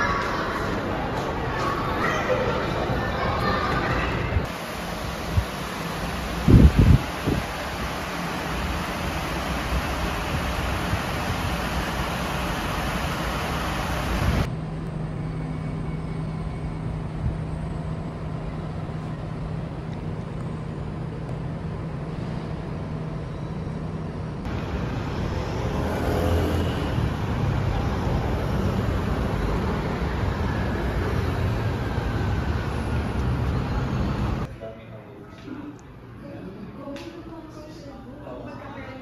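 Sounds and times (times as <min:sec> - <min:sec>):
busy road traffic: 0:00.0 - 0:34.6
steady low hum: 0:04.3 - 0:25.7.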